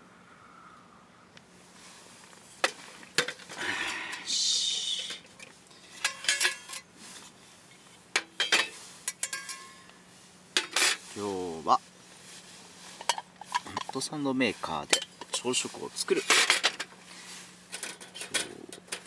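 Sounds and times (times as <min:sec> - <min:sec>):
rustling: 0:05.1 - 0:19.0
metal cookware clinking: 0:05.9 - 0:06.9, 0:08.2 - 0:09.8.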